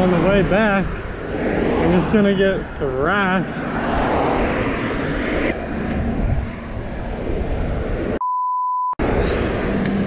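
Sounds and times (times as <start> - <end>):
cars passing close by: 0.0 - 8.2, 9.0 - 10.0
high censor beep: 8.2 - 9.6.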